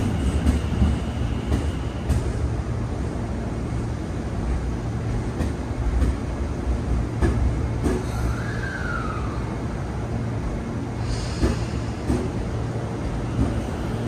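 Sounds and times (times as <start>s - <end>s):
electric train rumbling: 0.0s - 14.0s.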